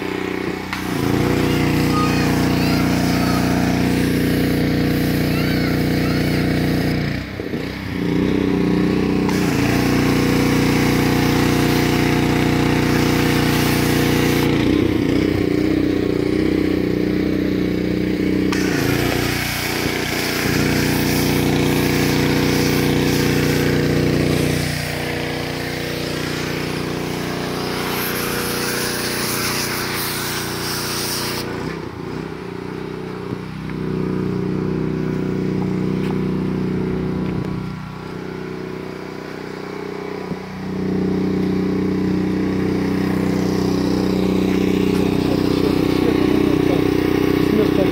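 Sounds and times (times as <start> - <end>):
water jet hissing: 0.0 - 6.9, 9.2 - 14.6, 18.5 - 31.8, 40.3 - 47.9
pressure washer engine running: 0.0 - 47.9.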